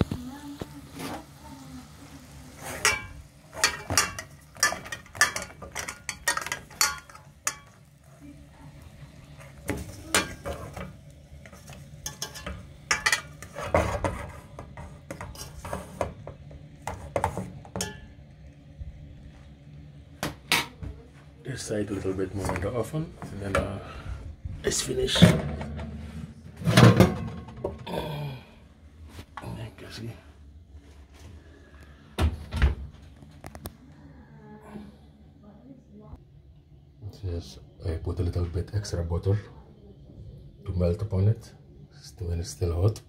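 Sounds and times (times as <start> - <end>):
metal utensil clinking on pot: 2.8 - 7.9, 9.6 - 14.2, 17.7 - 18.2.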